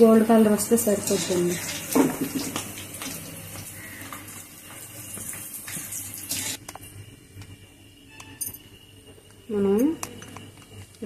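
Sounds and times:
potatoes sizzling in hot oil: 0.6s - 6.6s.

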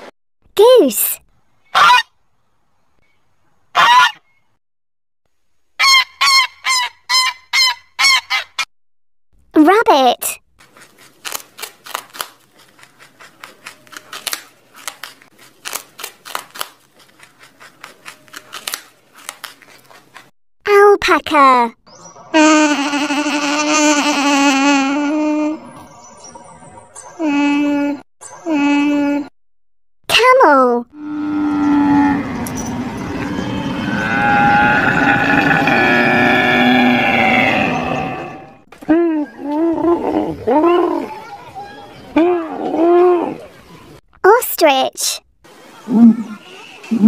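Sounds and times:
rabbits chewing: 10.6s - 20.3s
camel bellowing: 31.0s - 38.6s.

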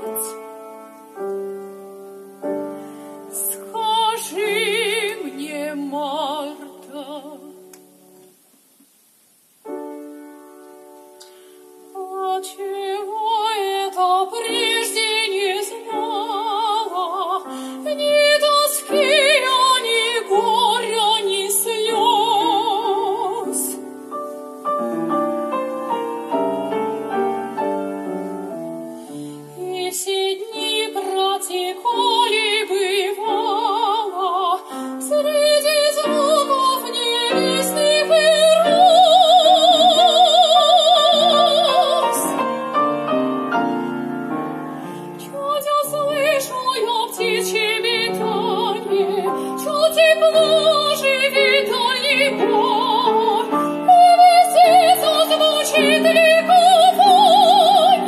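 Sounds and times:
grand piano: 0.0s - 58.0s
woman singing operatically: 3.3s - 7.7s, 11.9s - 23.9s, 29.6s - 42.6s, 45.1s - 58.0s.

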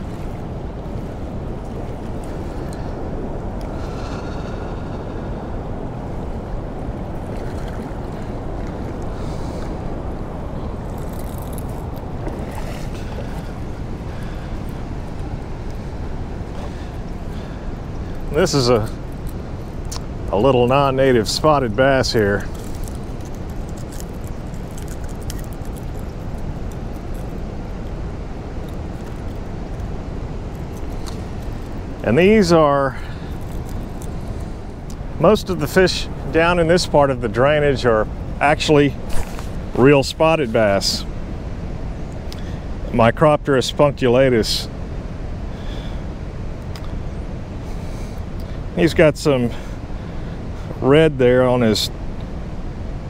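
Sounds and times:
wind buffeting microphone: 0.0s - 42.8s
choppy river flowing: 0.0s - 43.4s
steady rushing noise: 0.0s - 53.0s.

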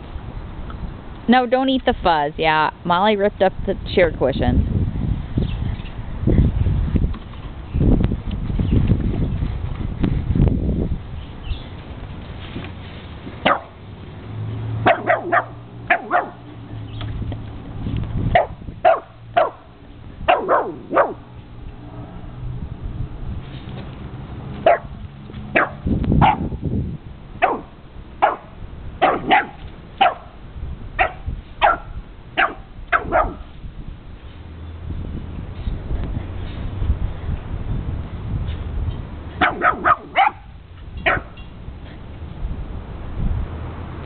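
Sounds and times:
dog barking: 13.4s - 13.8s, 14.8s - 16.5s, 18.4s - 19.7s, 20.3s - 21.2s, 24.6s - 26.5s, 27.4s - 30.3s, 31.0s - 33.5s, 39.4s - 41.4s.

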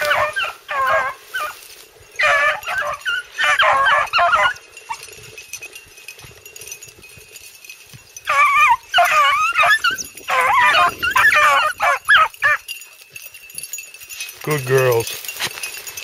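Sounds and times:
dogs yelping: 0.0s - 5.7s, 8.1s - 13.8s.

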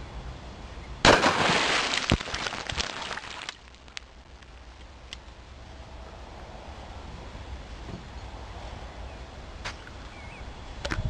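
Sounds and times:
small splashes: 1.1s - 4.0s.

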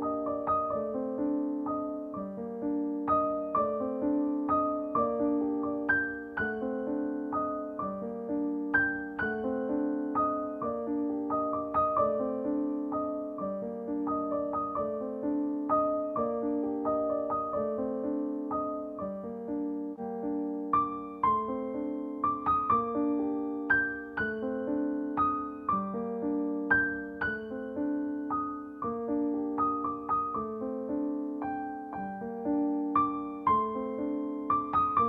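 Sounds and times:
gentle piano melody: 0.0s - 35.0s.

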